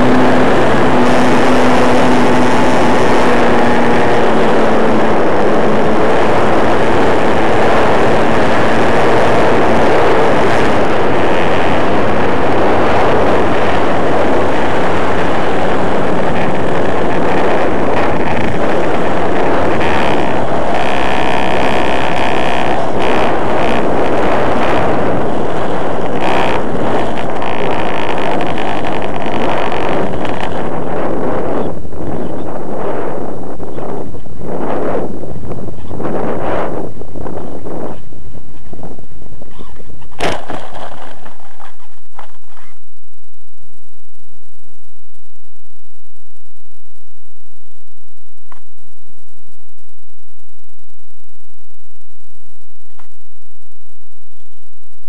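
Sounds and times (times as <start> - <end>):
model airplane engine running: 0.0 - 33.2
wind rush on microphone: 0.0 - 55.0.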